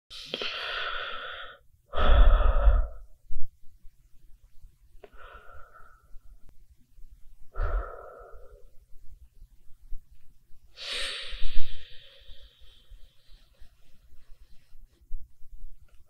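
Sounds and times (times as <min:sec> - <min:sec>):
person breathing: 0:00.1 - 0:03.2, 0:05.0 - 0:06.5, 0:07.4 - 0:08.9, 0:10.7 - 0:14.8.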